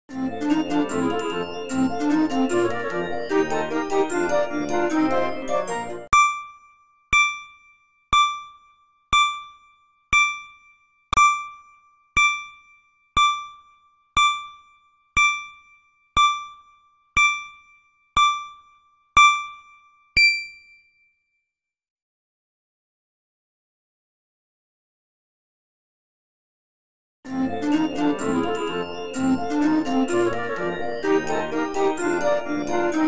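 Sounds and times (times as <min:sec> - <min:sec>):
short electronic dings: 0:06.1 - 0:21.2
higher final ding: 0:20.2 - 0:21.0.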